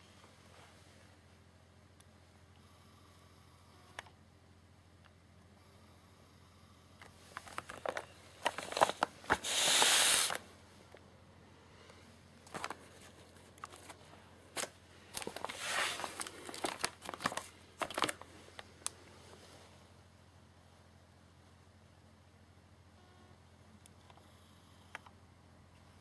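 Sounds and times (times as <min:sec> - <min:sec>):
plastic shrink-wrap crinkling: 0:07.3 - 0:10.4, 0:14.6 - 0:19.0.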